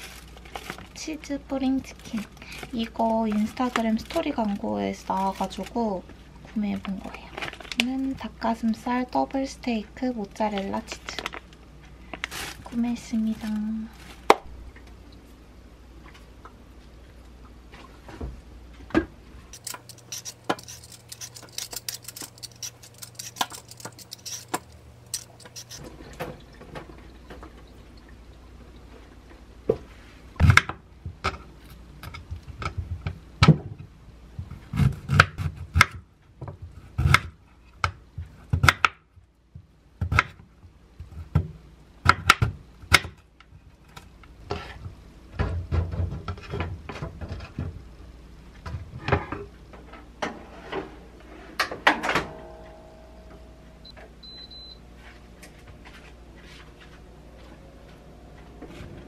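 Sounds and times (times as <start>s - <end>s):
scratchy scraping: 19.6s - 25.9s.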